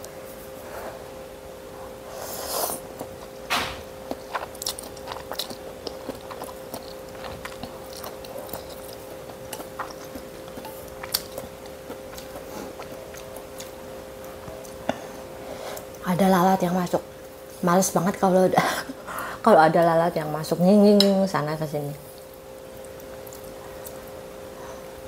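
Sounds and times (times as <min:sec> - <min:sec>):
faint steady hum: 0:00.0 - 0:25.0
person slurping noodles: 0:02.1 - 0:02.9
person chewing: 0:02.3 - 0:16.0, 0:22.2 - 0:24.2.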